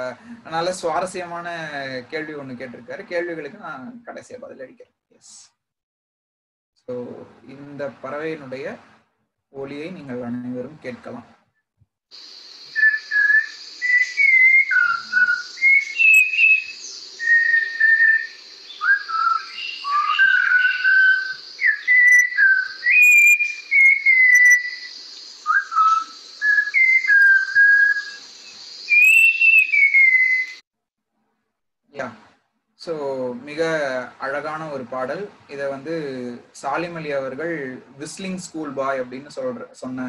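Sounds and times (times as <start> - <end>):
steady hiss: 0.0 - 4.4, 12.1 - 30.6, 32.0 - 40.0.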